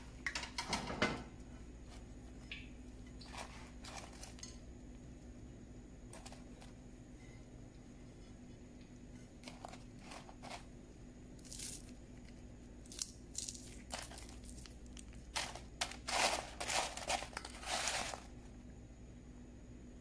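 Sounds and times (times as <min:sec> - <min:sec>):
dry crunching and crinkling: 0:11.4 - 0:18.4.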